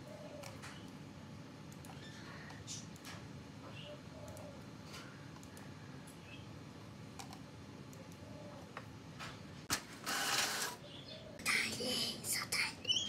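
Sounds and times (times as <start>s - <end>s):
faint clicks: 4.2s - 6.2s
printer paper feed: 9.7s - 10.8s.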